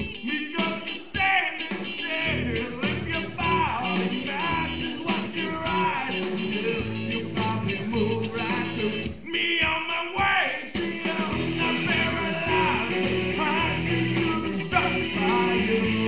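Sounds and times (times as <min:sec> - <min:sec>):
man singing into microphone: 0:00.0 - 0:16.0
rock backing music: 0:00.0 - 0:16.0.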